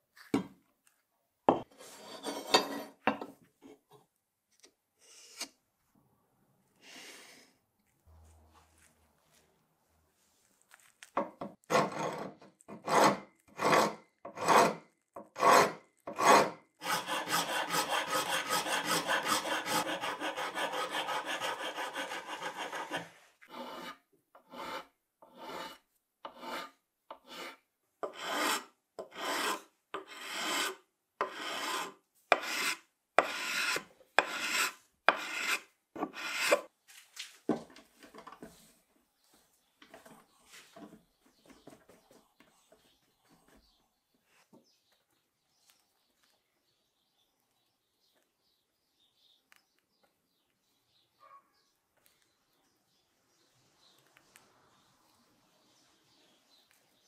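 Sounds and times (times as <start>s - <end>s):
sanding wood by hand: 16.2s - 23.9s.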